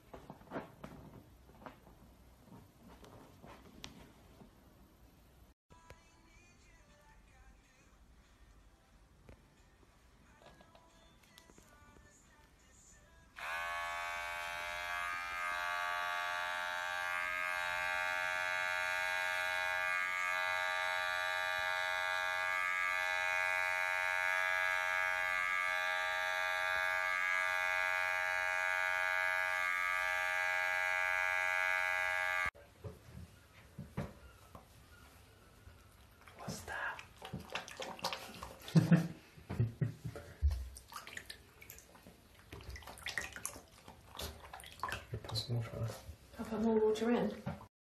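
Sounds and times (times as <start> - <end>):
electric clipper buzzing: 13.4 - 32.6.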